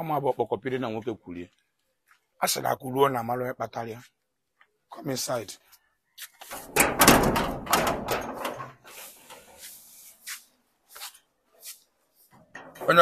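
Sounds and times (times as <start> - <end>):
door opening with clattering: 6.5 - 8.9, 12.4 - 13.0.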